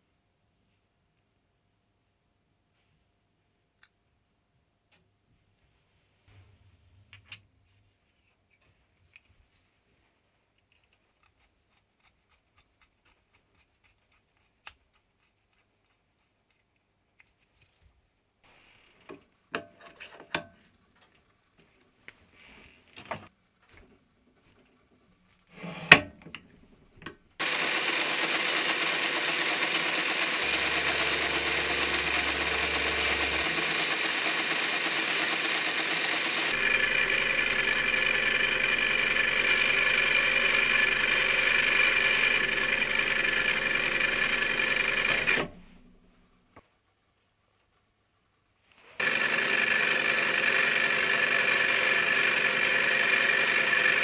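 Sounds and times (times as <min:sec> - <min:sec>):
metal parts clinking and knocking: 0:23.0 - 0:23.4
metal lathe running: 0:27.4 - 0:45.8, 0:49.0 - 0:54.0.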